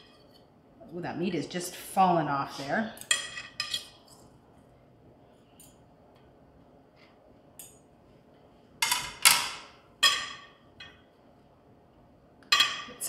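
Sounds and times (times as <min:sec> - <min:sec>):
metal utensils clinking on plate: 0:03.0 - 0:04.2.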